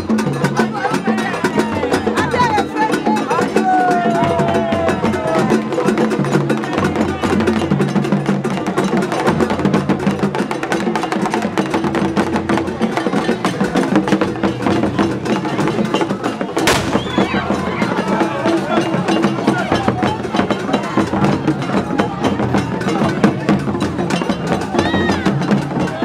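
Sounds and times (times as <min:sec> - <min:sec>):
rapid clicking percussion: 0:00.0 - 0:26.0
sharp bang: 0:16.6 - 0:17.6.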